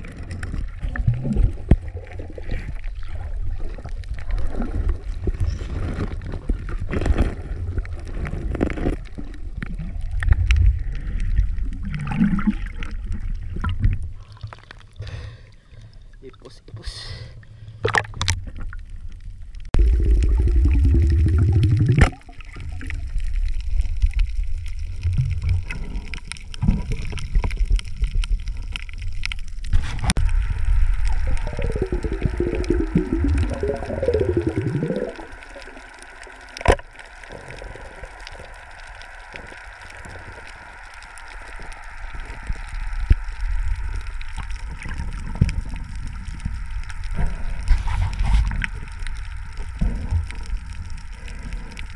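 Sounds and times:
bubbly gurgle: 0:00.0 - 0:15.0, 0:17.8 - 0:51.9
water gurgling and sloshing: 0:00.0 - 0:51.9
low rumble: 0:18.4 - 0:51.9.

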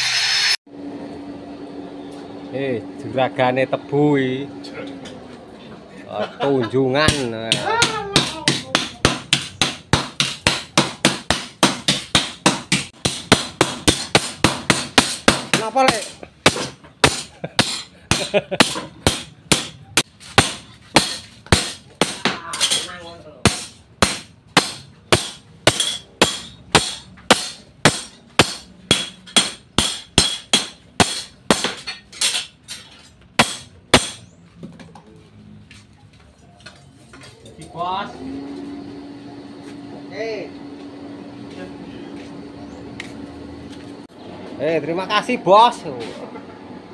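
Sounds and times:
hammer striking steel: 0:07.0 - 0:34.3
hammer ringing on anvil: 0:24.6 - 0:31.8.

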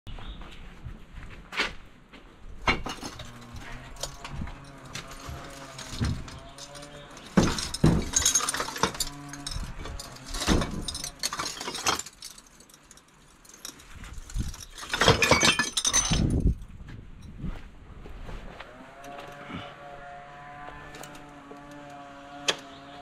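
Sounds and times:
glass bottles clinking: 0:02.7 - 0:16.5.

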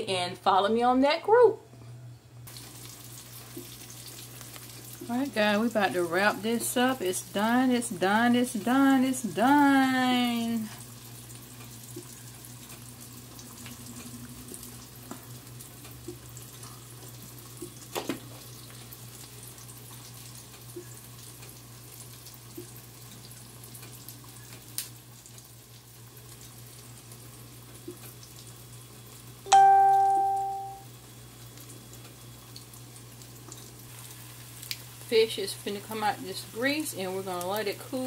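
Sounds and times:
electronic chime: 0:29.5 - 0:30.8.

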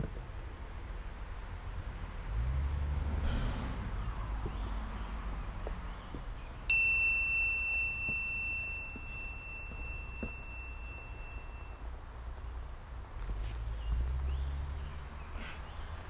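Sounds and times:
bright metallic ding: 0:06.7 - 0:11.8.

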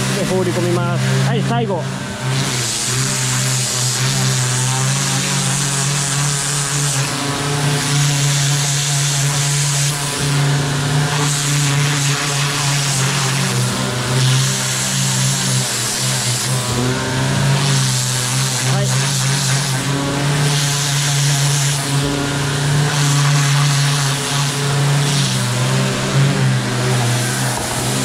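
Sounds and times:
pressure washer motor hum: 0:00.0 - 0:28.0
water jet hissing: 0:00.0 - 0:28.0.

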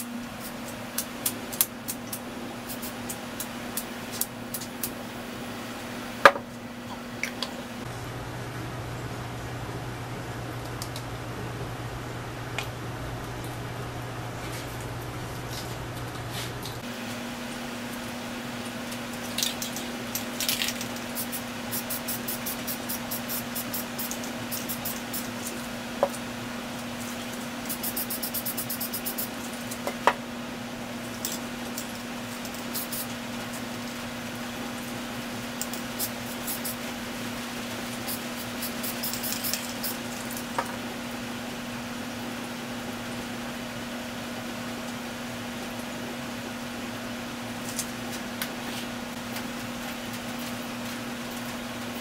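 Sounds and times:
steady low hum: 0:00.0 - 0:52.0
spray paint hissing: 0:01.8 - 0:03.2, 0:20.4 - 0:25.6, 0:27.6 - 0:29.4, 0:32.6 - 0:33.2, 0:35.6 - 0:36.9, 0:37.8 - 0:40.2
spray cans rattling when shaken: 0:19.2 - 0:25.6, 0:37.9 - 0:40.5.

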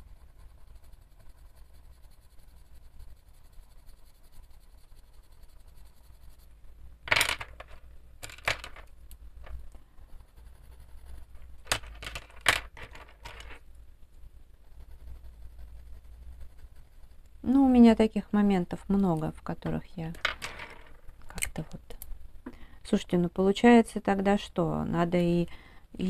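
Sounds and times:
wooden pencils clicking on a tabletop: 0:07.1 - 0:09.8, 0:11.6 - 0:13.6, 0:18.9 - 0:22.1.

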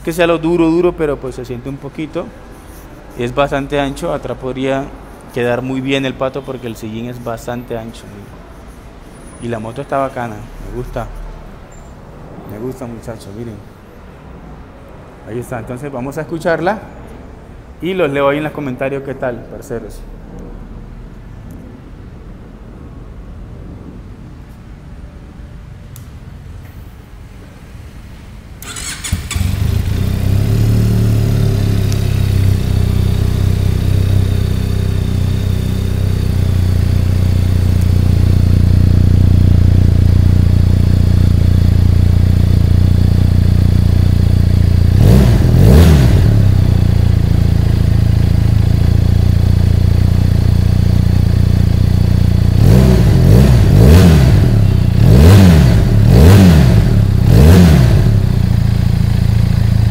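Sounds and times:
motorcycle engine idling: 0:28.6 - 0:56.1, 0:58.0 - 0:59.9
motorcycle engine revving: 0:28.6 - 0:59.9.

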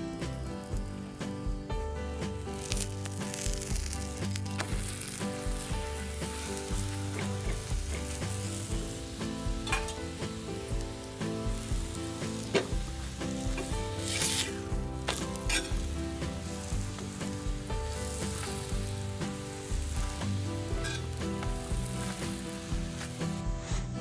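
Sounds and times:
flatbread sizzling on griddle: 0:00.0 - 0:24.0
spatula scraping and clicking: 0:13.6 - 0:15.8, 0:20.7 - 0:22.2.

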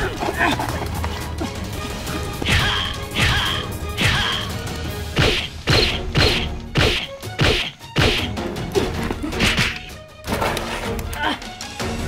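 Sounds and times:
punches whacking with swishes: 0:05.1 - 0:08.4.

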